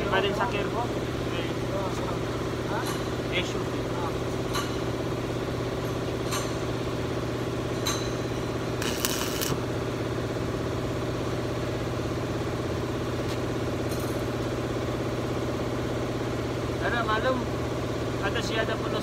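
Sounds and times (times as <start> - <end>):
low machine hum: 3.5 - 13.1
welding arc sizzle: 8.5 - 9.9.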